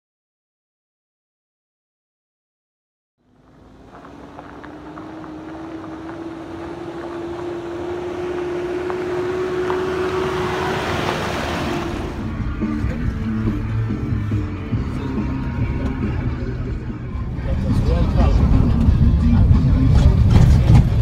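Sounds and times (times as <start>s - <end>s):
vehicle engine hum: 3.2s - 21.0s
tyres on gravel: 3.3s - 15.4s.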